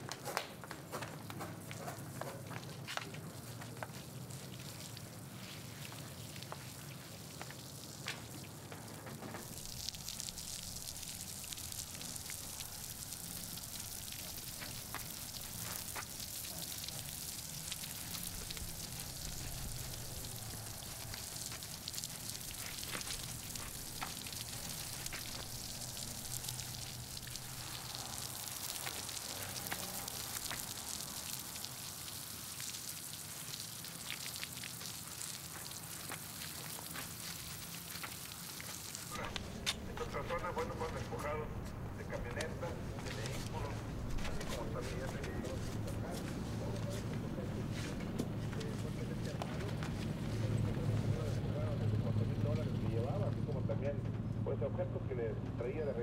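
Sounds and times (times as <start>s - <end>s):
hose water spraying on dirt: 0.0s - 53.8s
small ticks: 9.8s - 39.1s.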